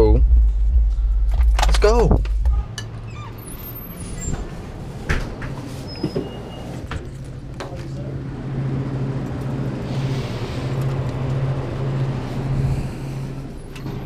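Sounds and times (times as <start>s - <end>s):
drinks cooler hum: 0.0s - 3.2s.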